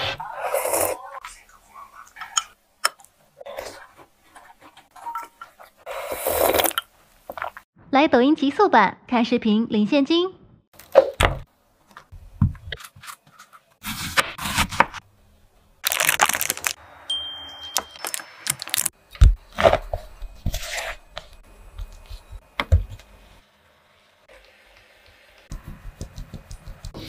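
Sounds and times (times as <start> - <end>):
foil wrapper crinkling: 15.8 - 16.8, 18.0 - 19.0.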